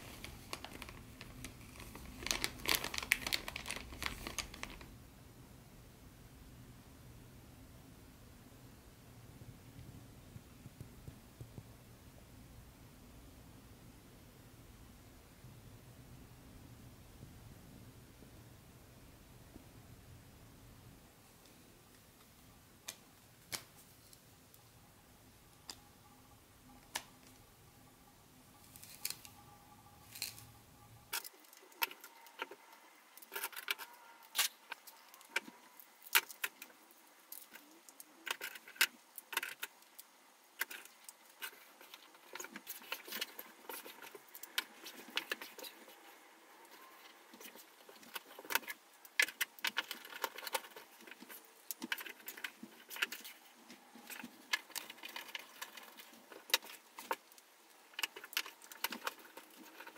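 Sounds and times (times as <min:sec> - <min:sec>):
small hard parts clicking and rattling: 0:31.1 - 0:59.9.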